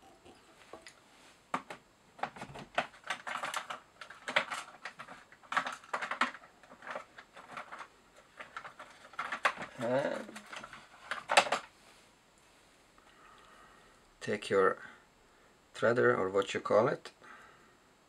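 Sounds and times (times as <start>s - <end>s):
small tools clicking and rustling: 0.2s - 11.7s.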